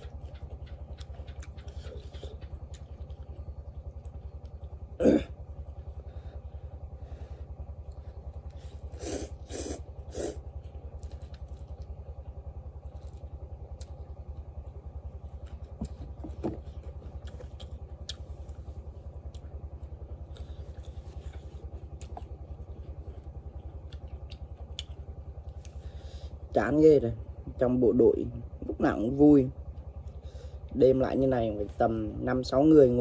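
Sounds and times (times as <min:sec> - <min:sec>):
clatters of eating: 0:00.0 - 0:05.4, 0:15.1 - 0:25.9
small engine chugging: 0:00.0 - 0:33.0.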